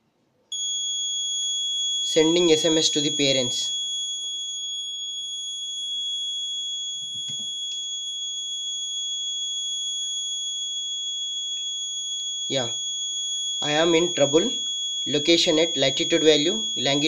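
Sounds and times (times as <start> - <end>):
high-pitched buzzer tone: 0.6 - 8.1.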